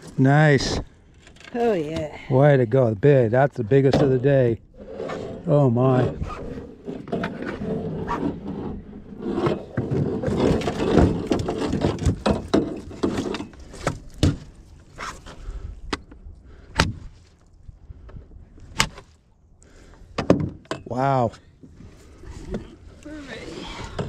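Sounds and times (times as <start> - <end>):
knocks and scrapes on aluminum boat: 3.8 - 17.2.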